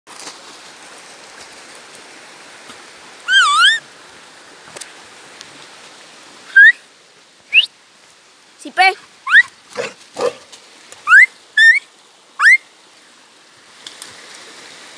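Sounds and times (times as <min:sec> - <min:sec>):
steady background hiss: 0:00.1 - 0:14.9
high-pitched whistled calls: 0:03.3 - 0:03.8, 0:06.5 - 0:06.8, 0:07.5 - 0:07.7, 0:09.2 - 0:09.5, 0:11.0 - 0:11.8, 0:12.4 - 0:12.7.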